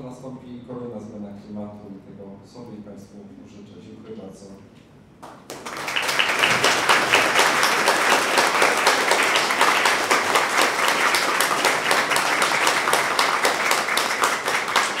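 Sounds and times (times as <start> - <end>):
audience applauding: 5.2 - 15.0.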